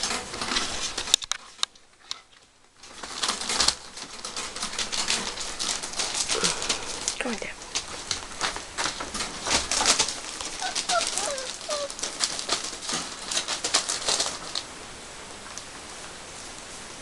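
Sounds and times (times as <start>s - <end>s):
paws scratching and scuffling: 0.0s - 14.7s
puppies squeaking and whimpering: 10.3s - 12.6s.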